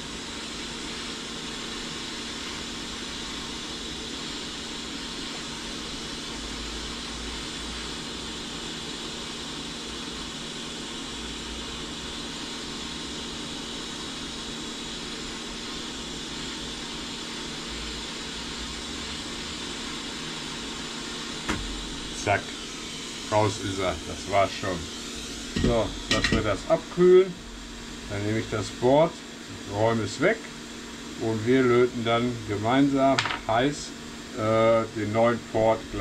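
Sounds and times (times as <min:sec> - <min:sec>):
hot-air gun hissing: 0:00.0 - 0:36.0.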